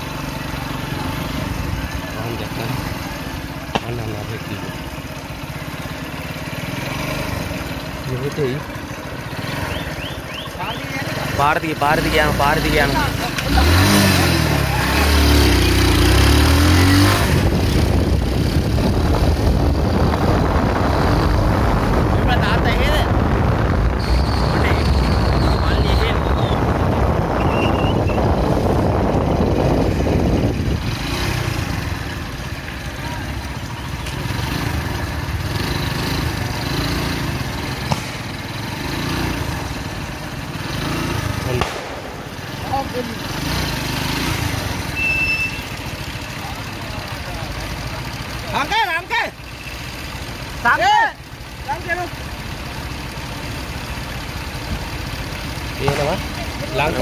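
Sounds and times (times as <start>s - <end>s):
wind and road rumble: 0.0s - 49.3s, 49.9s - 57.0s
vehicle engine humming: 0.0s - 57.0s
firecracker bang: 37.8s - 38.5s, 41.5s - 42.9s.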